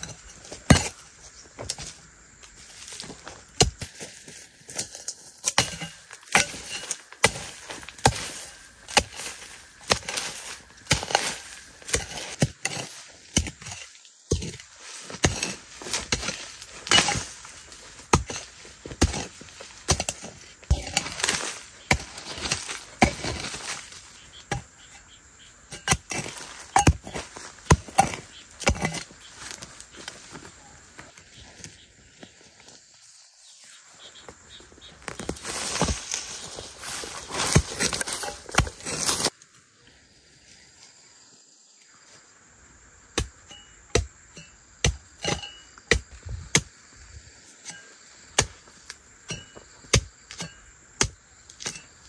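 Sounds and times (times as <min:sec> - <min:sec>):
hoe chopping into soil: 0:00.0 - 0:01.0, 0:02.8 - 0:24.8, 0:25.7 - 0:29.6, 0:35.0 - 0:39.3, 0:47.6 - 0:51.9
earth scraping: 0:00.0 - 0:39.4.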